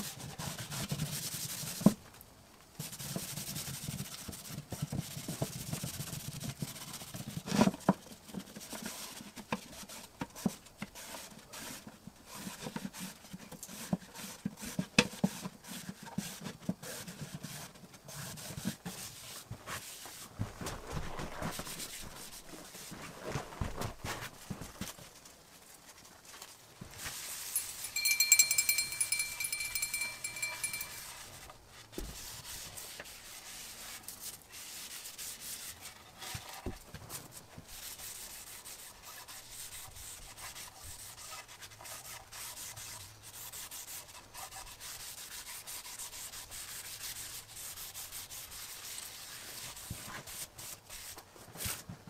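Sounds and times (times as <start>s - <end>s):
high ringing tone: 27.6s - 31.2s.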